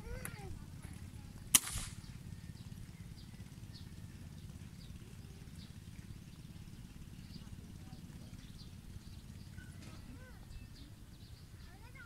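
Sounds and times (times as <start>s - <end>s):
air gun shot: 1.5s - 2.1s.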